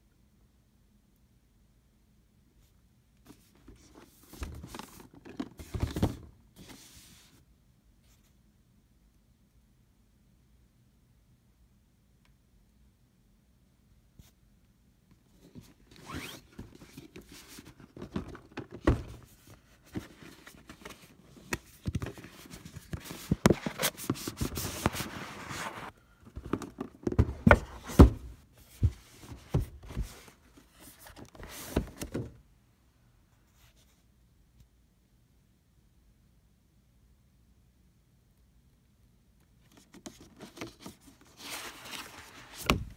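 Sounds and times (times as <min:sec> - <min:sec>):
cardboard box rustling and scraping: 0:22.0 - 0:25.9.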